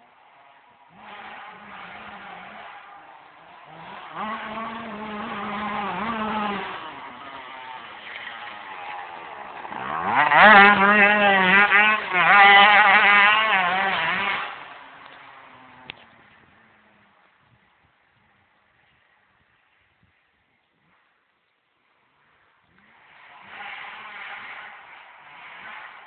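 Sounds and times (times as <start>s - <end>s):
dirt bike engine revving: 0.2s - 17.2s, 22.7s - 26.0s.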